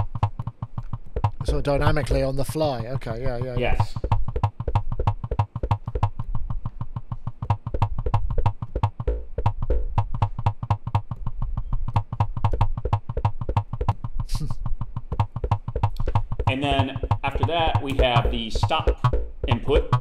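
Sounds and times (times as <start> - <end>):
synthesizer plucked notes: 7.4 - 20.0.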